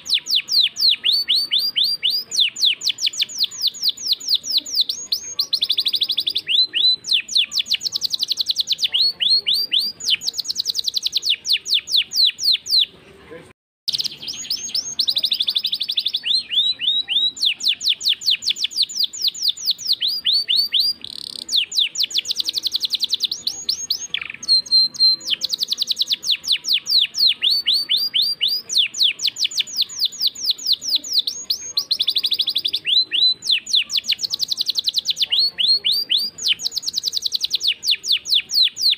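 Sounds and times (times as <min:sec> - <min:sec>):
canary singing: 0:00.0 - 0:13.0, 0:13.9 - 0:38.9.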